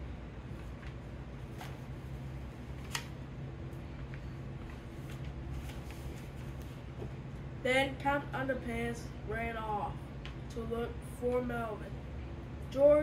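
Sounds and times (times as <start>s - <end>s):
low room hum: 0.0s - 13.0s
paper pages rustling: 0.5s - 3.2s, 4.6s - 7.1s.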